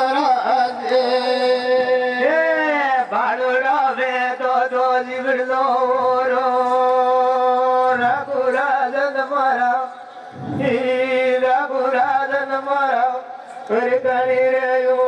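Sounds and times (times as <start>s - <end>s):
voices chanting in long held notes: 0.0s - 3.7s.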